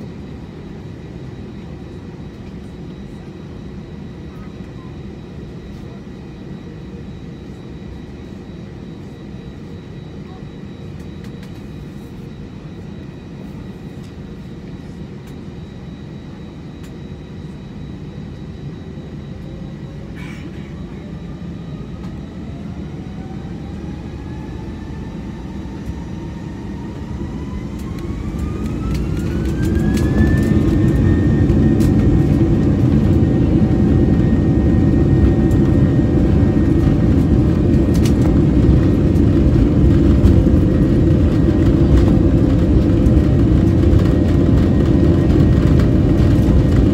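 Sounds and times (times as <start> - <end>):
jet engines whining: 0.0 - 46.9.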